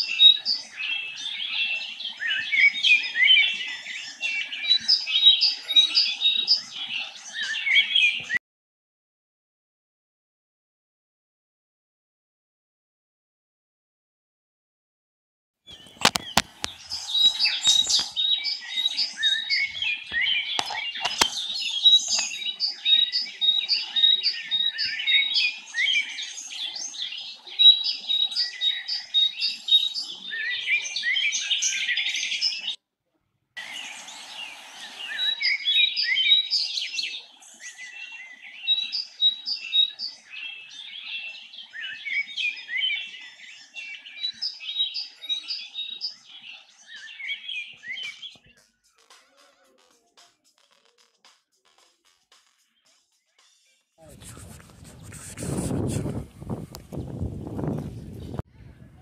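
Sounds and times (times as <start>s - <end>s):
birds chirping and twittering: 0.0s - 8.4s, 15.7s - 32.8s, 33.6s - 59.0s
sharp clicks: 15.8s - 16.8s, 20.1s - 21.5s.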